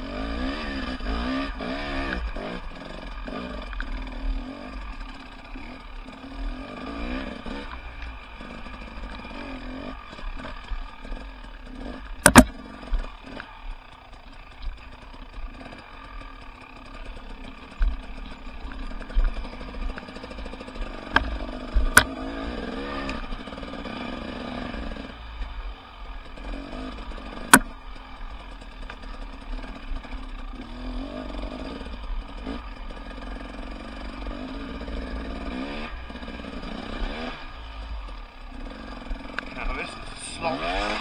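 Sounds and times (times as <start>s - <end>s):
motorcycle engine revving: 0.0s - 41.0s
sharp knocks: 12.2s - 12.5s.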